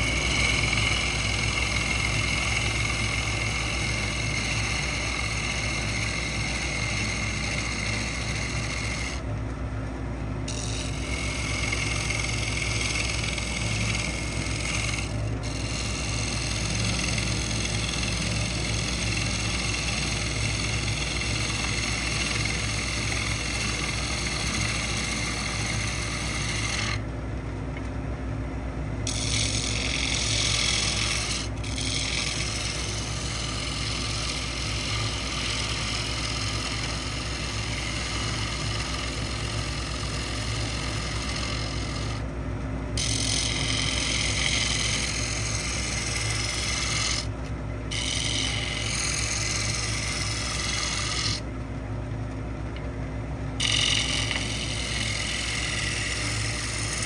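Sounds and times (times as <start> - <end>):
wood lathe motor hum: 0.0 - 27.9, 28.8 - 57.0
tool scraping spinning wood: 0.0 - 57.0.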